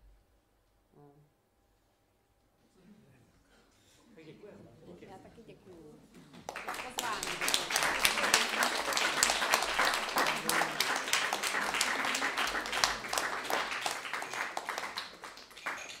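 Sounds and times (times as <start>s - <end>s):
audience applauding: 6.3s - 16.0s.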